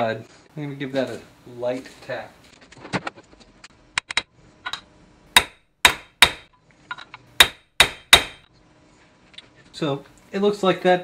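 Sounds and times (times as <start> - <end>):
hammer striking metal: 5.4 - 6.5, 7.4 - 8.5.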